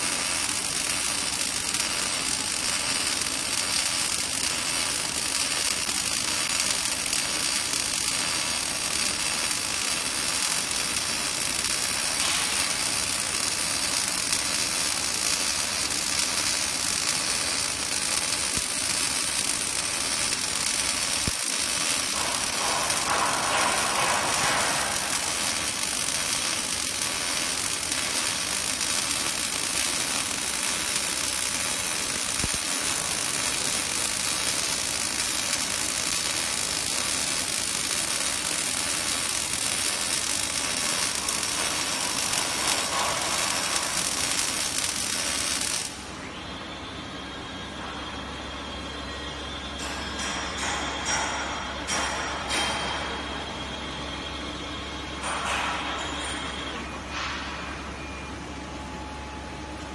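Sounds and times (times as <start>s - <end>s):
laser welding hiss: 0.0s - 46.2s.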